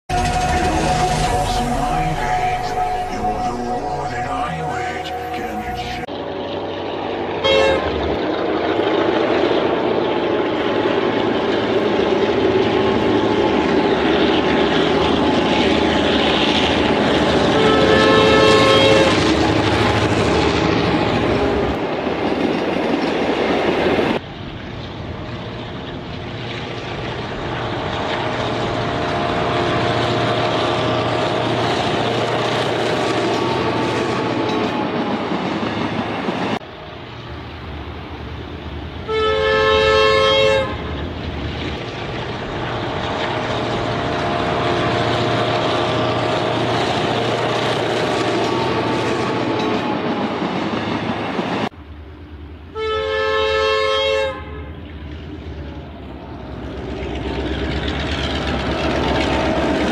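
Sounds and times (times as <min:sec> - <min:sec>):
locomotive horn blasts: 0:00.1 - 0:06.1, 0:07.4 - 0:08.1, 0:17.3 - 0:21.2, 0:39.0 - 0:41.0, 0:52.7 - 0:54.7
train running: 0:00.1 - 0:59.9.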